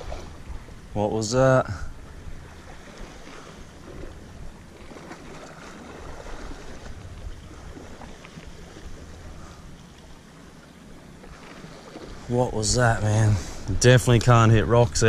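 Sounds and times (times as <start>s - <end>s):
wind buffeting microphone: 0.0s - 9.8s.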